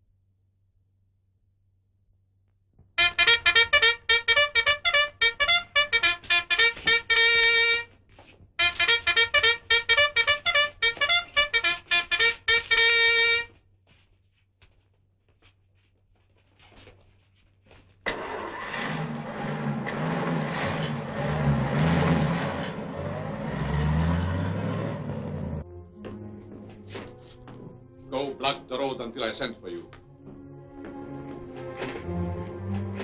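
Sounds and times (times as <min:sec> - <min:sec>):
bugle call: 0:03.0 - 0:07.9, 0:08.6 - 0:13.5
vehicle engine running: 0:18.1 - 0:25.6.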